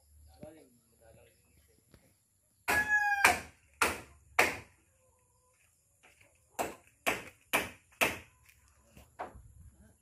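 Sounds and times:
hammer driving nails into wood: 6.6s - 8.3s.

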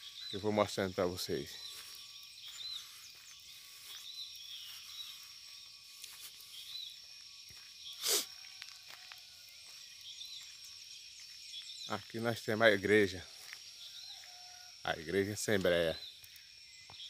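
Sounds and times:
short chirping calls: 0.0s - 7.0s, 7.7s - 8.4s
short hiss: 8.0s - 8.3s.

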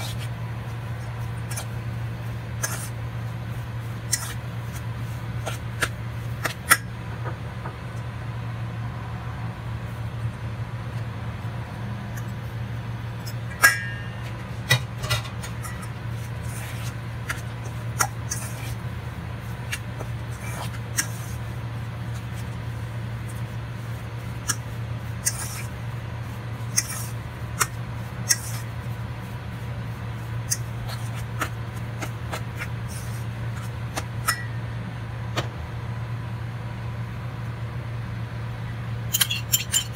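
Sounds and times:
low hum: 0.0s - 39.9s
fork scraping metal bowl: 2.5s - 3.0s, 4.0s - 4.8s, 15.0s - 18.8s, 24.4s - 25.7s, 26.6s - 28.7s, 39.1s - 39.9s.

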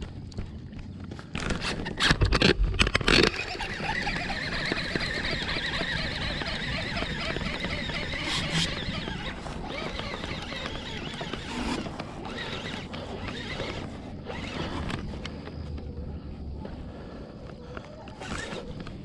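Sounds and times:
fishing reel whirring: 3.0s - 15.1s.

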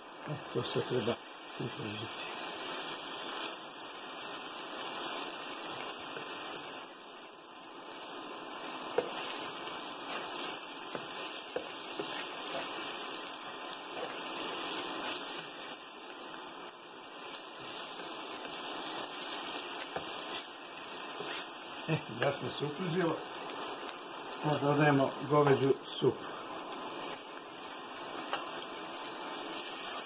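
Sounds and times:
mushrooms sizzling in pan: 0.0s - 30.0s
spatula tapping and scraping pan: 8.9s - 15.5s, 19.8s - 20.4s, 21.2s - 21.5s, 28.2s - 28.6s.

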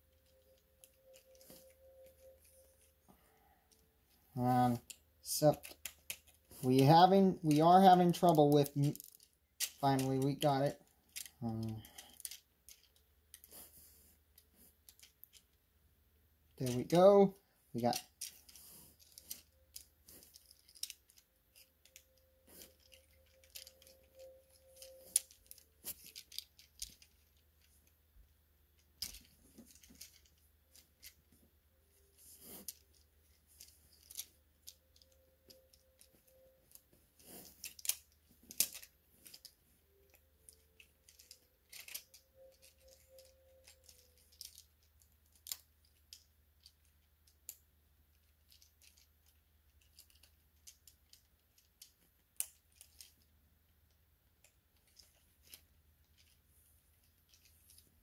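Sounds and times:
faint tone: 0.0s - 4.6s, 22.1s - 25.7s
plastic parts clicking and rattling: 0.1s - 15.7s, 16.5s - 58.0s.

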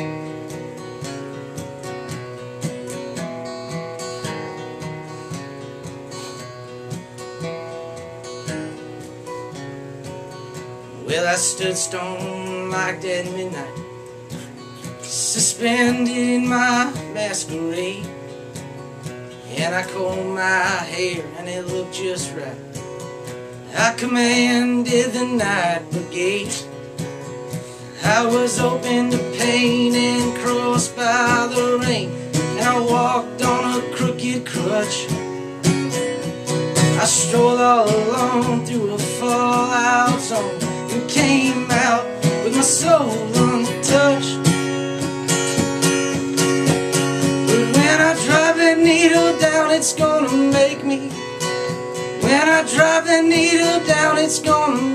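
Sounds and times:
acoustic guitar: 0.0s - 54.9s
man singing: 10.9s - 13.9s, 14.8s - 18.3s, 19.4s - 22.8s, 23.6s - 26.8s, 27.6s - 35.5s, 36.4s - 44.8s, 47.2s - 54.9s.

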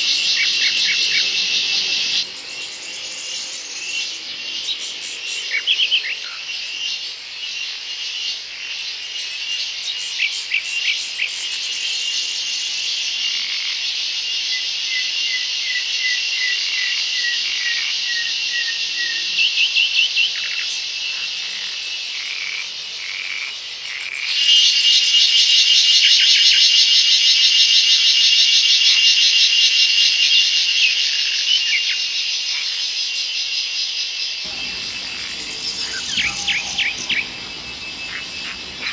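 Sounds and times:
insect chorus shrilling: 0.0s - 7.8s, 34.5s - 38.9s
bird repeating a short note: 34.5s - 38.9s.

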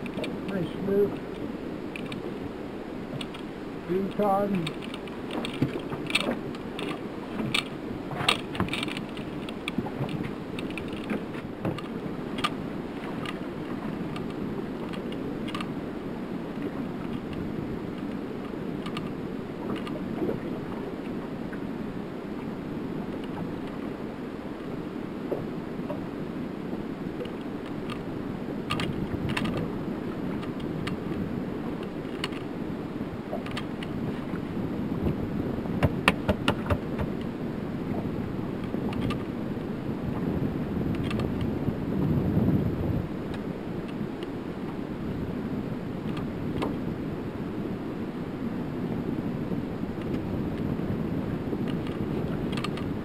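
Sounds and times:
water lapping around boat: 0.0s - 53.0s
wind: 0.0s - 53.0s
fishing tackle clicking and knocking: 4.1s - 9.8s, 35.8s - 37.2s.

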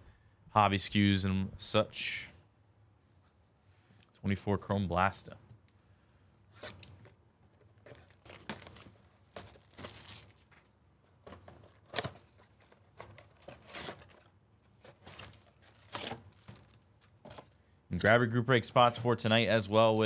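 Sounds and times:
plastic wrap crackling rips: 7.8s - 10.7s, 13.2s - 17.2s, 19.2s - 20.0s.

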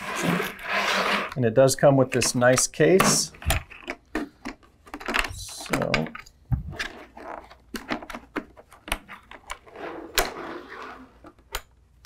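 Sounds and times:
contents rustling: 2.2s - 9.8s.

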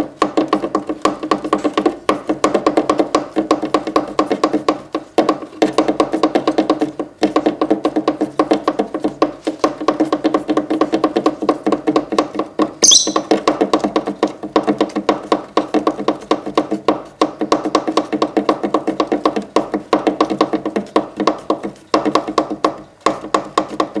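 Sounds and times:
fingertips tapping a board: 0.0s - 24.0s
bird chirp: 12.8s - 13.3s.

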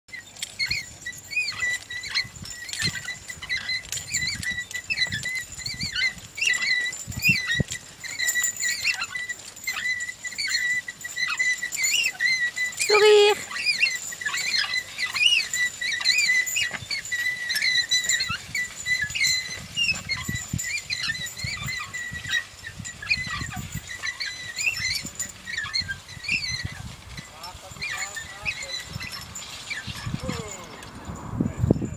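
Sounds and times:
hooves and plough thudding: 0.1s - 31.9s
loud held call: 12.9s - 13.4s.

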